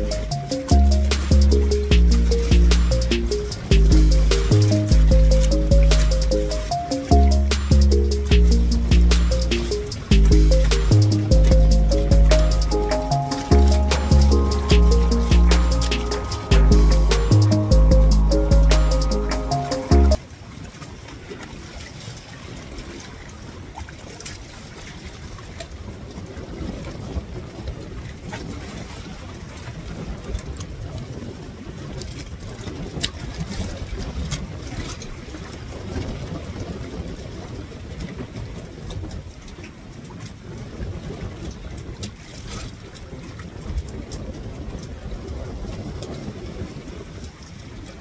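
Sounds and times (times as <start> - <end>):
water lapping against raft: 20.2 - 48.0
wind rumbling on microphone: 20.5 - 48.0.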